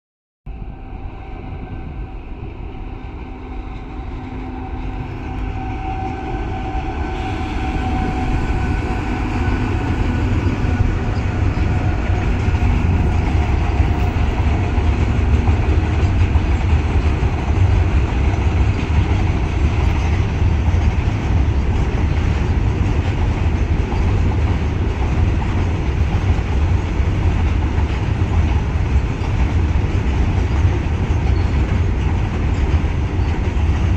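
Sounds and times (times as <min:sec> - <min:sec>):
freight train rumbling past: 0:00.5 - 0:33.9
locomotive whine: 0:00.5 - 0:33.9.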